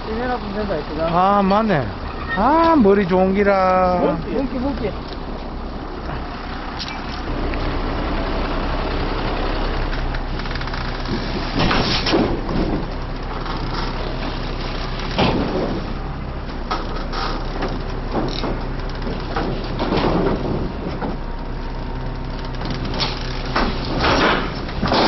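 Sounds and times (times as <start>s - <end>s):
engine idling: 0.0s - 25.0s
knocks and clatters: 9.9s - 25.0s.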